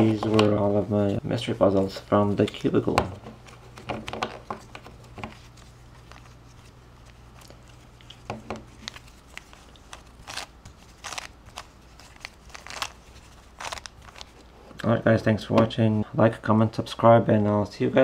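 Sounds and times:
puzzle cube clicking and scraping: 8.1 - 14.4.

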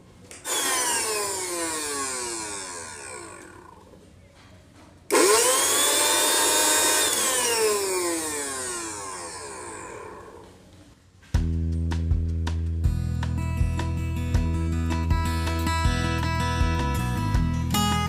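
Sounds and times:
mixer grinder motor whine: 0.4 - 4.0, 5.1 - 10.8.

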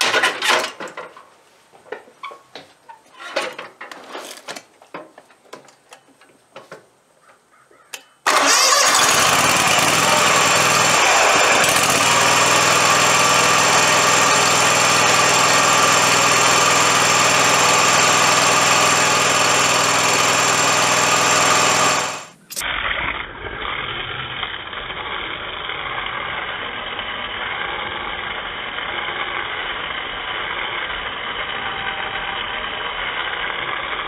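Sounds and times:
mower engine running: 8.2 - 22.6, 23.6 - 34.0.

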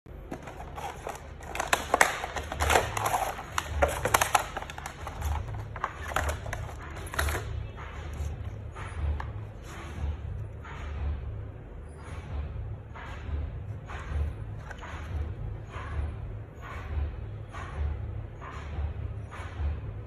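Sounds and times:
book clicks taps and rustles: 0.3 - 7.5.

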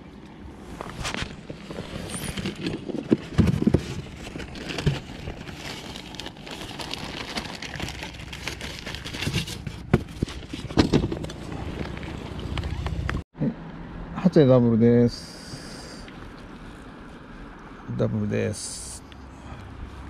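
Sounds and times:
plastic bag rustling: 0.8 - 12.6.

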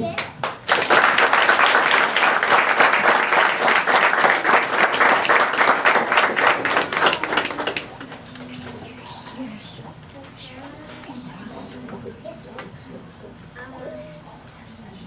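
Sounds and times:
crowd applauding: 0.4 - 8.5.

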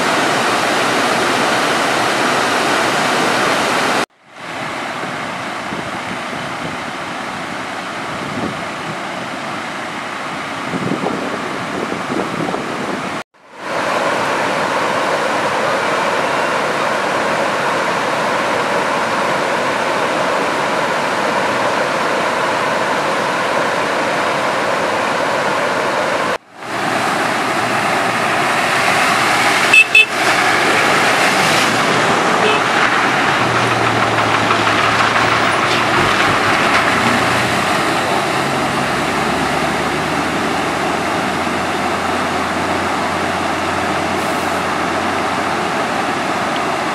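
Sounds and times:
floodwater rushing: 0.0 - 46.9
low engine hum: 12.3 - 46.9
vehicle horn toots: 29.6 - 30.3, 32.3 - 32.8.

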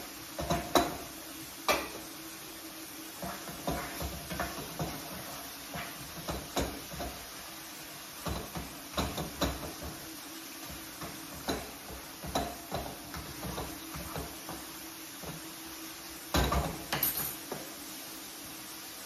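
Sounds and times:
steady hiss: 0.0 - 19.0
spatula scraping frying pan: 3.1 - 14.7.

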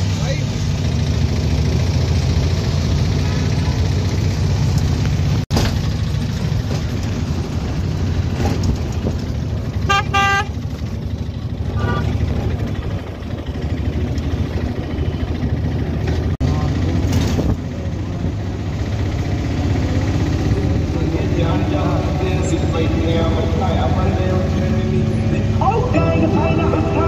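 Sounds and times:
auto-rickshaw engine running: 0.0 - 27.0
road noise: 0.0 - 27.0
vehicle horn honking: 9.8 - 10.6.

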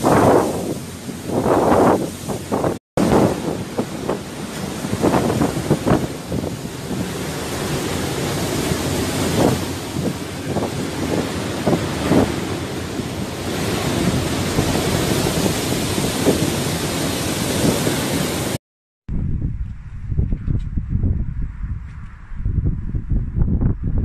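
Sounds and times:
rough sea breaking: 0.0 - 18.6
wind buffeting microphone: 0.0 - 24.0.

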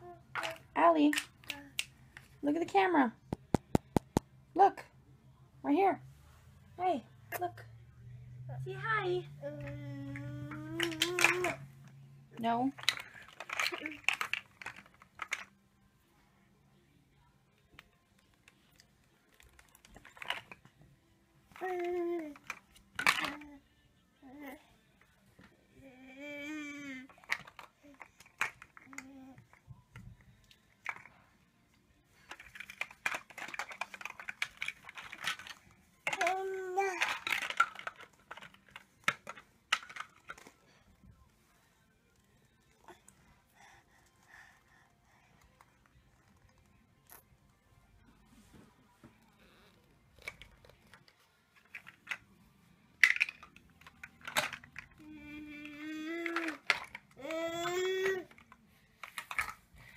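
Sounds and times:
plastic blocks clicking and rattling: 0.3 - 2.3, 9.7 - 11.6, 12.7 - 15.5, 19.3 - 20.7, 21.6 - 23.5, 27.0 - 29.6, 30.8 - 31.2, 32.2 - 40.6, 50.2 - 52.3, 53.0 - 59.7
toddler vocalizing: 57.2 - 58.3.

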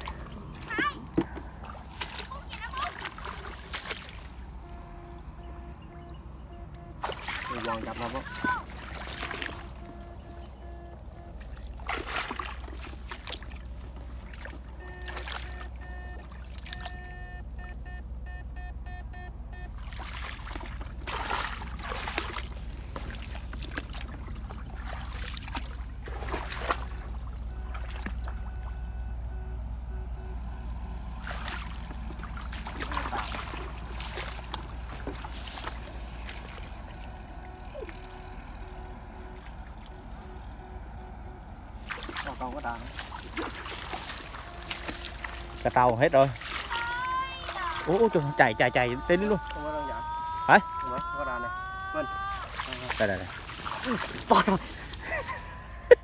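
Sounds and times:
pole swishing through grass and water: 0.0 - 6.1, 6.9 - 17.1, 19.8 - 29.2, 31.0 - 51.4, 52.0 - 56.0
electrofishing rig humming: 0.0 - 56.0
faint repeating beep: 4.6 - 8.5, 9.2 - 11.4, 14.8 - 19.8, 27.5 - 30.7.

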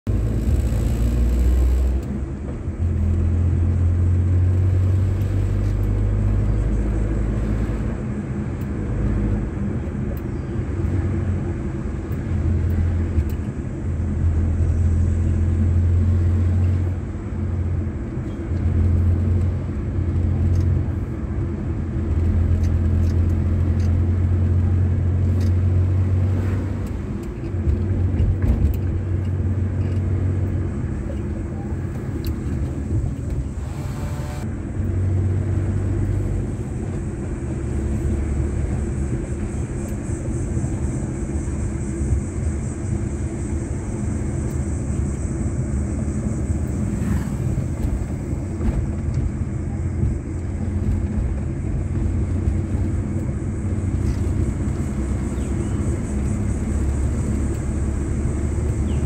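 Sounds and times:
car engine and road drone: 0.0 - 59.0.

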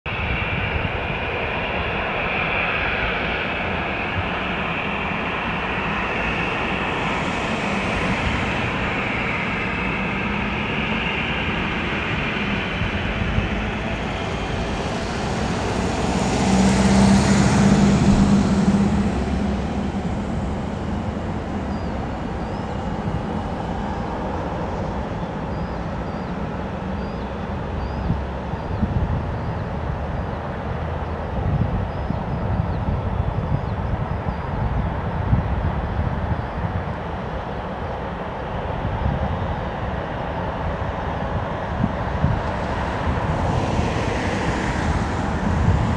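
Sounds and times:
jet engines rushing: 0.1 - 45.9.

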